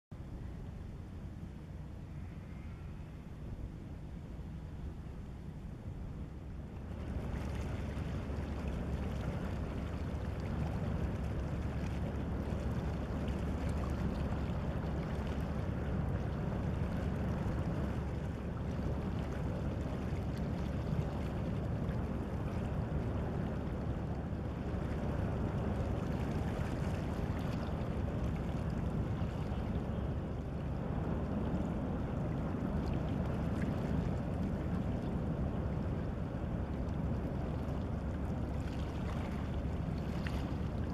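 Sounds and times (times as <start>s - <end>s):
boat engine rumble: 0.1s - 40.9s
rush of water: 4.4s - 40.9s.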